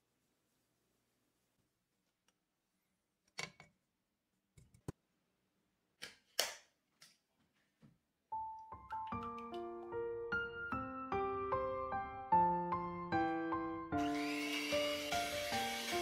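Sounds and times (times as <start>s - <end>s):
soft piano music: 8.3s - 16.0s.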